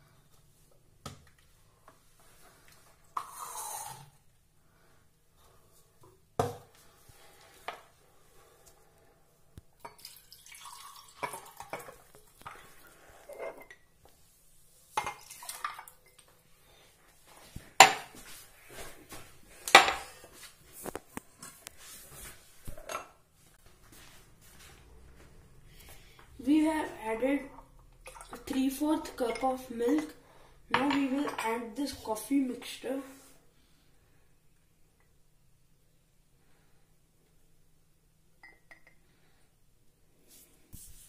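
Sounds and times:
milk pouring over ice: 9.9s - 12.9s
glassware clinking and knocking: 38.4s - 39.0s.

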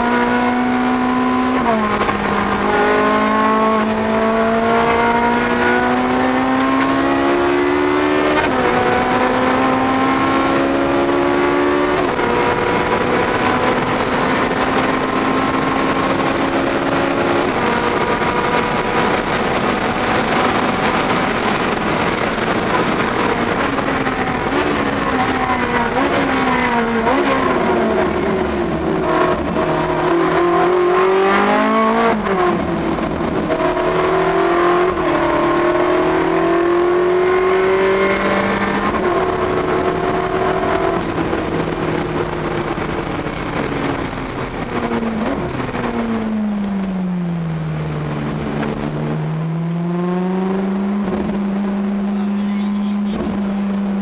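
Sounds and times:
car engine accelerating and shifting: 0.0s - 54.0s
road and wind noise: 0.0s - 54.0s.

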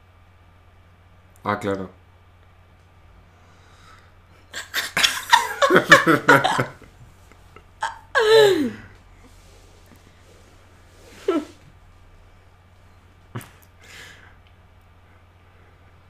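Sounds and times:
woman laughing hard: 4.5s - 8.9s, 11.1s - 11.6s.

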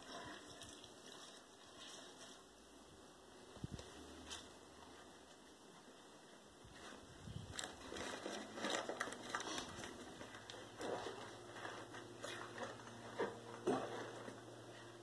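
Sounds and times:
wet paper crackling and rustling: 6.7s - 12.8s.

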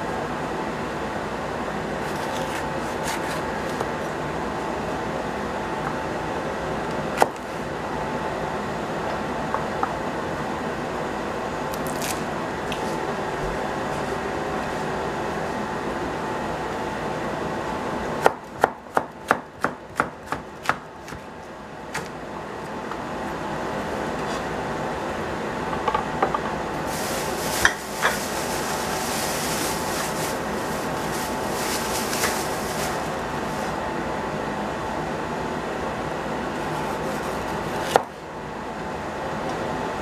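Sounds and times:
steady background hum: 0.0s - 40.0s
knife slicing on cutting board: 2.1s - 3.8s.

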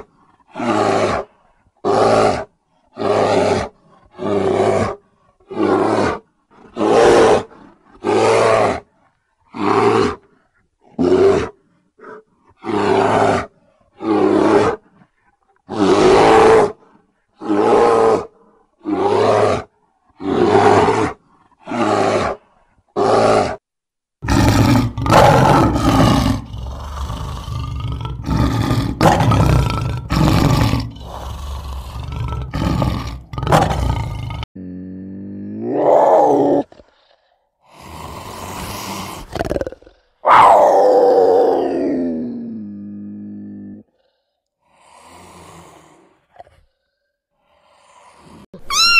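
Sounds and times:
bear roaring: 0.0s - 8.9s, 10.9s - 15.0s, 15.7s - 16.8s, 17.4s - 23.6s, 24.2s - 44.2s
lions roaring and grunting: 24.2s - 37.1s.

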